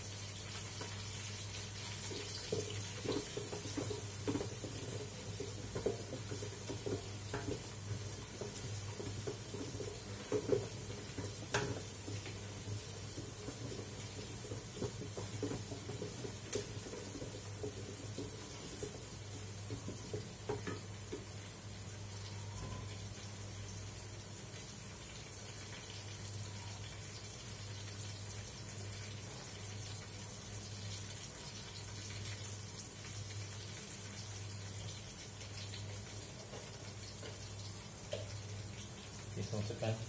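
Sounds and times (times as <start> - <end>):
spices sizzling in oil: 0.0 - 40.0.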